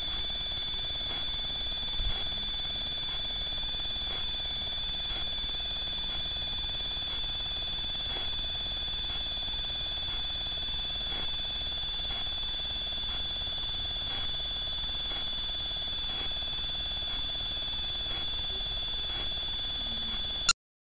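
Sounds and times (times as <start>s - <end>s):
high-pitched electronic whine: 0.0s - 20.6s
faint tick: 1.1s - 8.4s, 11.0s - 11.4s.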